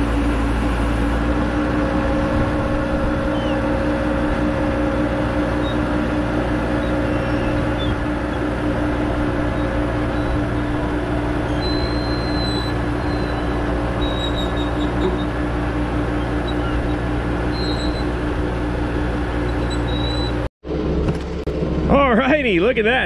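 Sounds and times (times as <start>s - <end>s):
forklift engine running: 0.0s - 23.0s.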